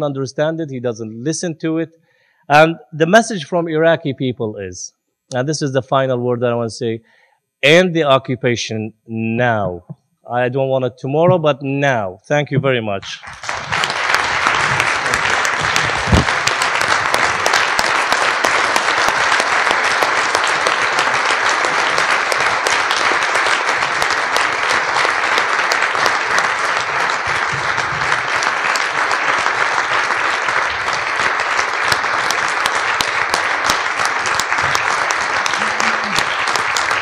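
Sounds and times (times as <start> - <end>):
audience applauding: 13.1 - 37.0.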